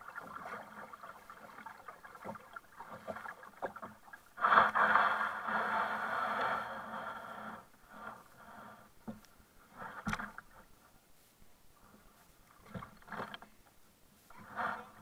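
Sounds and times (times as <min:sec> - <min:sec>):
water against kayak: 0:00.0 - 0:15.0
knocks and scrapes on hull: 0:09.0 - 0:10.7, 0:11.9 - 0:13.6.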